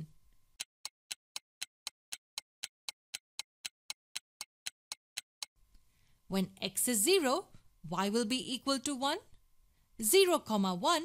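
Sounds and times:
clock ticking: 0:00.0 - 0:05.6.

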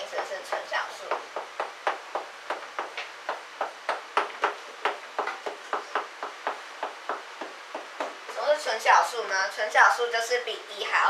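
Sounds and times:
chalk tapping on blackboard: 0:00.2 - 0:08.4.

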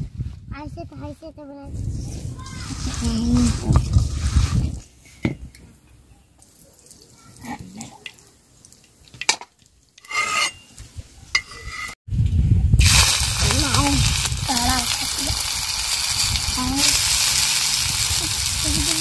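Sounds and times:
hot oil sizzling on griddle: 0:12.8 - 0:19.0.

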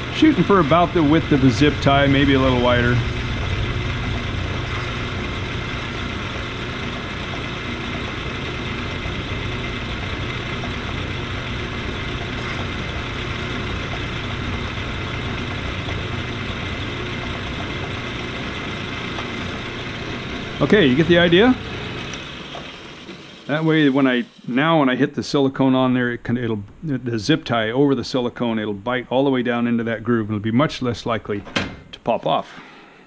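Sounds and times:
cutting tool whine: 0:00.0 - 0:25.2
metal lathe motor hum: 0:00.0 - 0:25.2.

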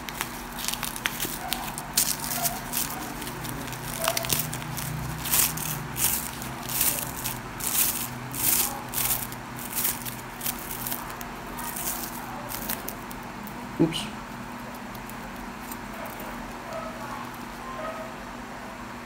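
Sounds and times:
foam wrap rustling and crinkling: 0:00.0 - 0:13.5
steady low hum: 0:00.0 - 0:19.0.

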